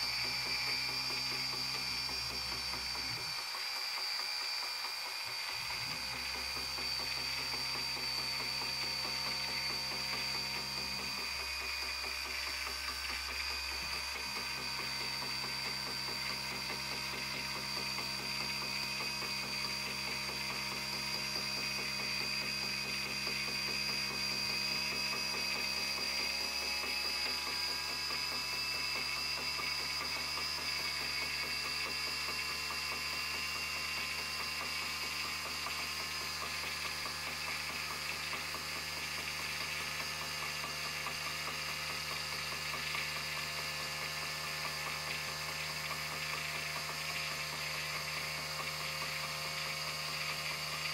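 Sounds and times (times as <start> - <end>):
robot motor whirring with high whine: 0.0 - 50.9.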